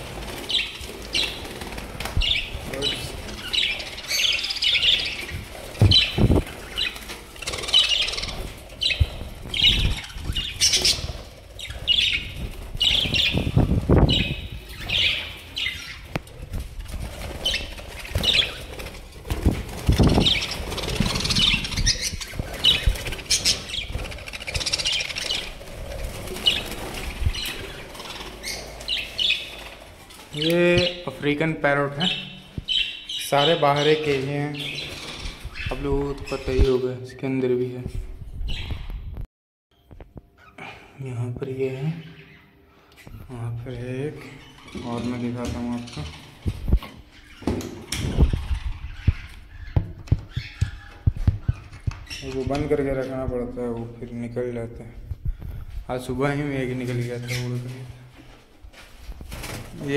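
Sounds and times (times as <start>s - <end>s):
wings flapping: 0.0s - 15.1s, 16.1s - 30.4s, 59.0s - 59.9s
budgerigars chirping: 0.3s - 1.6s, 2.2s - 16.1s, 17.2s - 18.9s, 19.7s - 25.6s, 26.2s - 29.8s, 31.8s - 36.8s, 47.1s - 52.8s.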